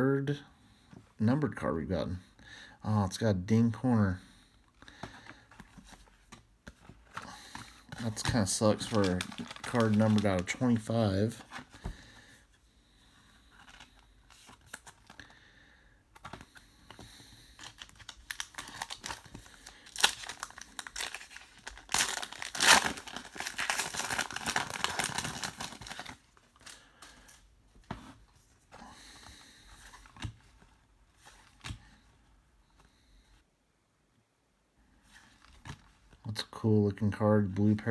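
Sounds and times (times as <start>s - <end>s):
cards and plastic sleeve rustling: 4.5s - 15.4s, 16.1s - 33.2s, 35.0s - 37.9s
card pack wrapper tearing: 8.0s - 11.0s, 17.6s - 26.7s.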